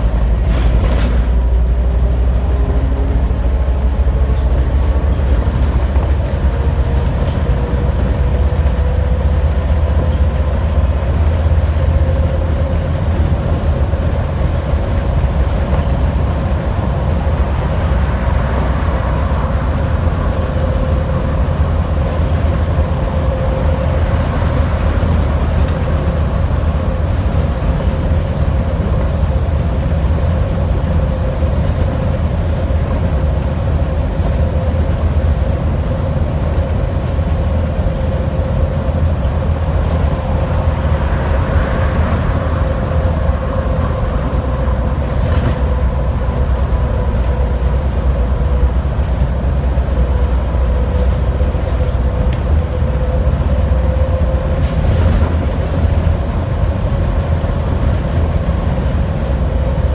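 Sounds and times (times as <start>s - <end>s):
bus engine and road rumble: 0.0s - 59.9s.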